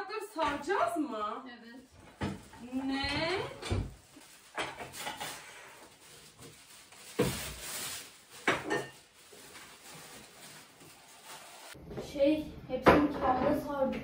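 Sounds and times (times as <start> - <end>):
paper rustling and crinkling: 3.8 - 11.8.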